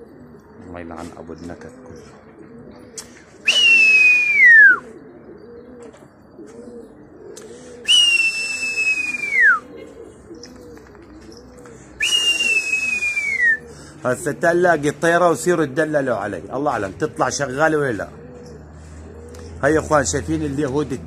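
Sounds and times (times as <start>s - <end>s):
pigeons cooing: 0.0s - 21.0s
person whistling loudly: 3.5s - 4.8s, 7.9s - 9.6s, 12.0s - 13.6s.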